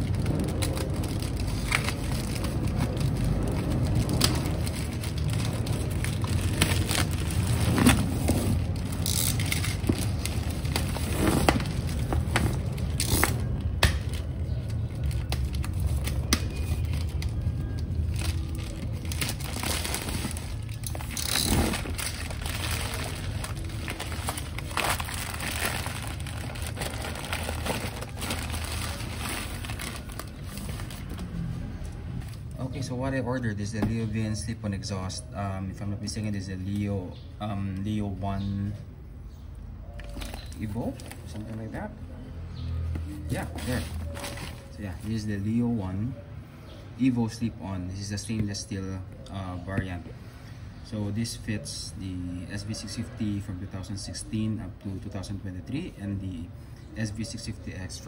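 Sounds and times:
plastic wrapping crinkling: 0:00.0 - 0:31.5, 0:43.4 - 0:45.1.

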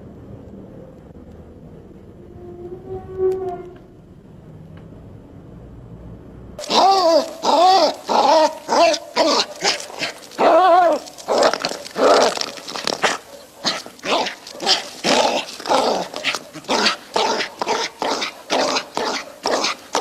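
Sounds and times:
dog barking and yipping: 0:06.6 - 0:20.0
dog yelping: 0:06.6 - 0:20.0.

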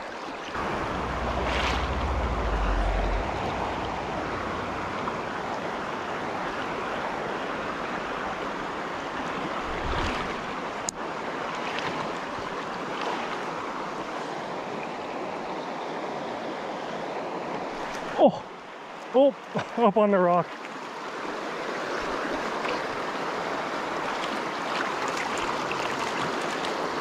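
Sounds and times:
stream flowing over rocks: 0:00.0 - 0:27.0
wind buffeting microphone: 0:00.6 - 0:05.8.

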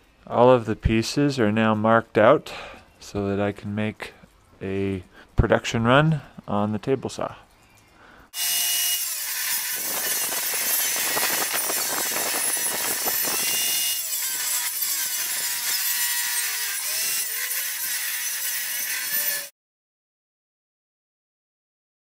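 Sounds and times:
table saw cutting wood: 0:08.4 - 0:19.5.

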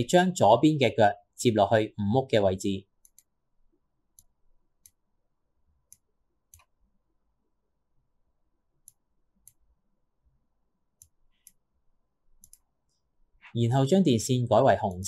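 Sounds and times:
faint mouse clicks: 0:03.0 - 0:03.4, 0:04.1 - 0:05.0, 0:05.8 - 0:06.9, 0:08.8 - 0:09.7, 0:11.0 - 0:11.6, 0:12.4 - 0:13.5.

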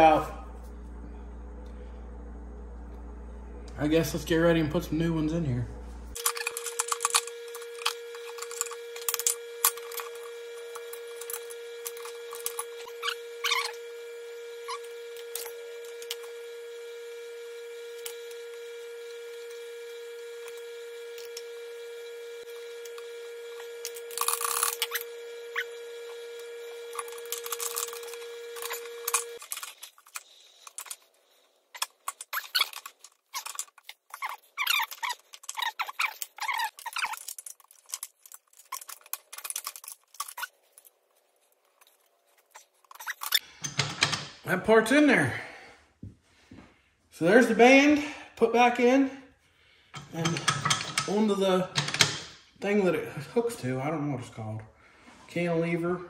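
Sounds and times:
steady hum: 0:00.0 - 0:56.0
steel parts clinking and scraping: 0:06.2 - 0:10.2, 0:31.8 - 0:41.0, 0:50.0 - 0:51.2.

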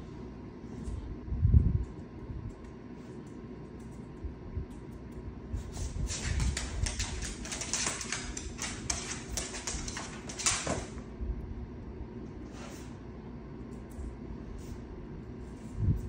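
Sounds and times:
dog claws clicking on floor: 0:05.8 - 0:11.1.

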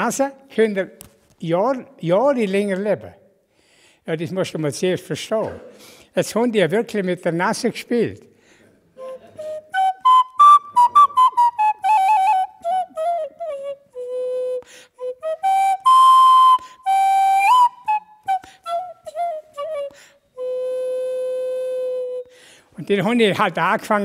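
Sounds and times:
wooden flute folk tune: 0:09.0 - 0:22.5.

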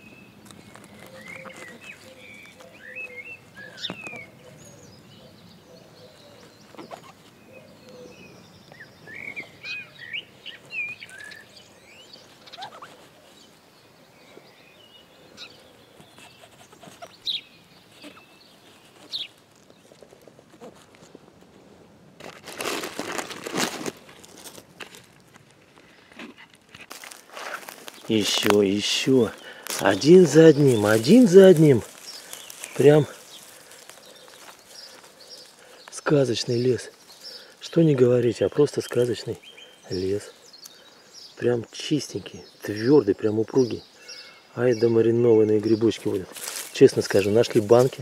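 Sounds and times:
rustling of pine needles: 0:00.0 - 0:48.0
handling rustle: 0:00.4 - 0:04.3, 0:15.7 - 0:40.8, 0:45.5 - 0:48.0
knife squeaking through stems: 0:00.5 - 0:04.3, 0:06.7 - 0:07.4, 0:12.4 - 0:13.4, 0:15.9 - 0:21.1, 0:26.2 - 0:35.6.

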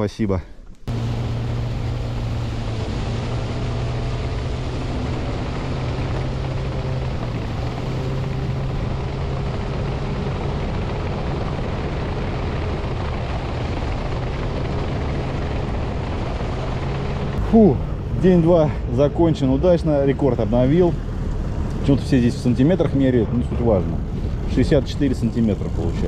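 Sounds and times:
outboard motor droning: 0:00.9 - 0:26.0
water rushing: 0:00.9 - 0:26.0.

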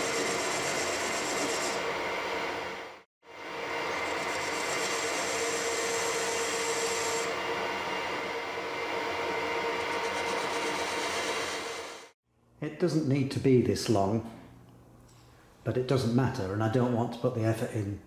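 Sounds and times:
metal lathe whine: 0:00.0 - 0:12.1.

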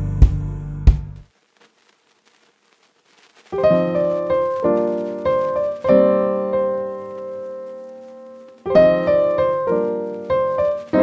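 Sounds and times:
piano chords: 0:03.6 - 0:11.0.

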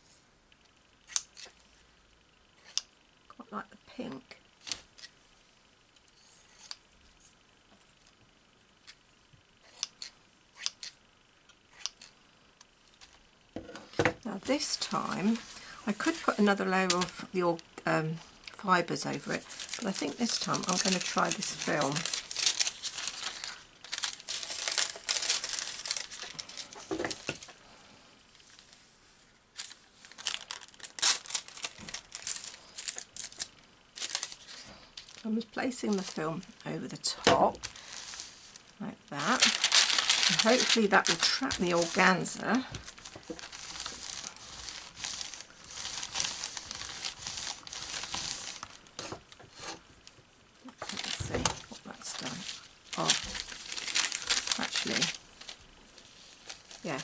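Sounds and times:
thin film crinkling and rustling: 0:11.9 - 0:27.6, 0:28.3 - 0:57.0.

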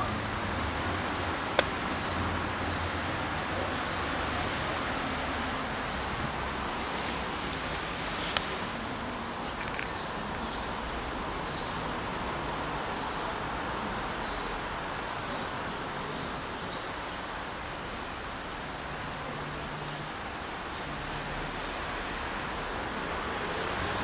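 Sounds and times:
street background hiss: 0:00.0 - 0:24.0.

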